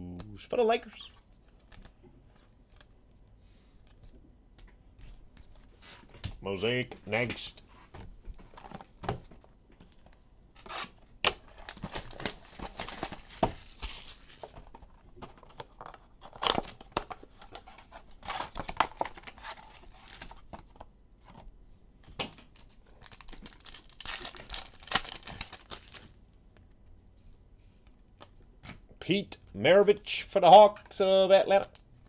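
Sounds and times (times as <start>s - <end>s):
cardboard tearing: 10.6s - 14.6s, 17.7s - 20.3s
foil wrappers crinkling: 11.3s - 17.6s, 22.3s - 26.2s.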